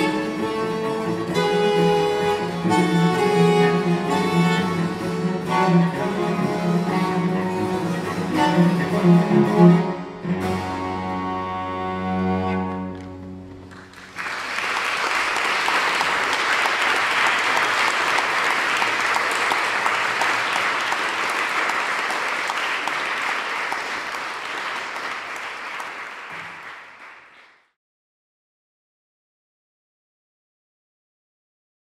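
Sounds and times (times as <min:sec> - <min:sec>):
audience applauding: 0:13.6 - 0:27.7.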